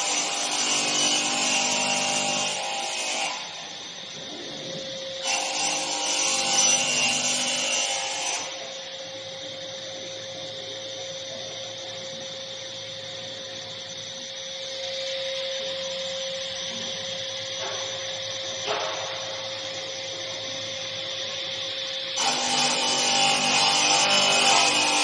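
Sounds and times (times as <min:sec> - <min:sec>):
saw cutting through wood: 0:00.0 - 0:03.8, 0:05.2 - 0:08.8, 0:22.0 - 0:25.0
saw spindle humming: 0:00.0 - 0:25.0.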